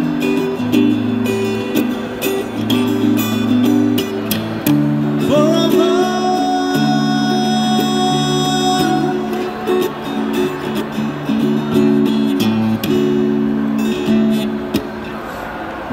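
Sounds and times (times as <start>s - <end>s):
acoustic guitar strummed: 0.0s - 15.9s
man singing: 5.2s - 9.9s.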